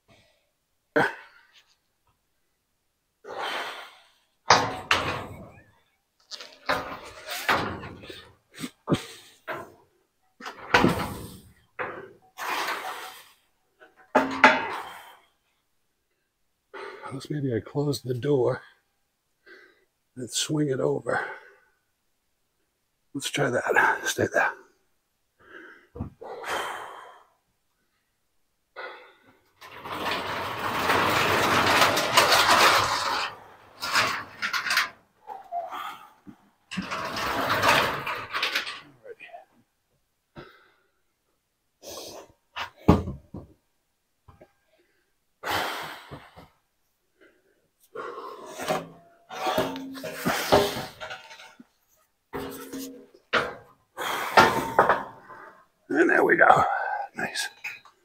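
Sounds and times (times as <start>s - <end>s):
garage door rolling shut: 4.5s - 5.7s, 6.4s - 8.3s, 10.5s - 13.2s, 29.6s - 35.0s, 36.7s - 39.0s, 48.5s - 51.5s, 52.4s - 55.3s
short knocks and clatters: 4.5s - 9.8s, 10.4s - 13.0s, 13.8s - 15.0s, 29.6s - 35.0s, 36.3s - 39.0s, 48.5s - 53.7s.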